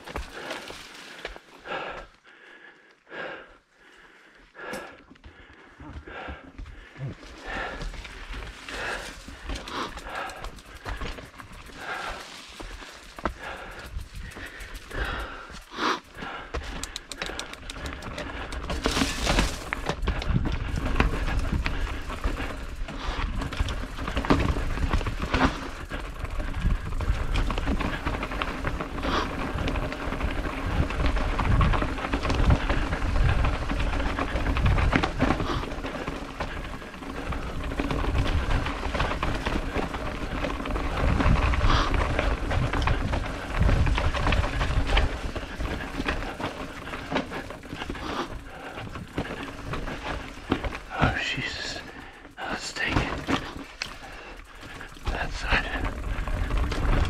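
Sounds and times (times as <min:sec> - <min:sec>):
bike rattling: 0:00.0 - 0:01.9, 0:06.1 - 0:57.0
tyres crunching over rock: 0:07.1 - 0:30.6
wind buffeting microphone: 0:08.4 - 0:15.6, 0:17.7 - 0:51.2.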